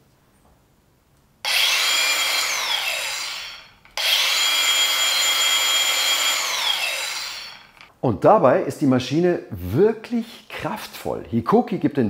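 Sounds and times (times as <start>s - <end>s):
angle grinder high whine: 1.4s - 7.9s.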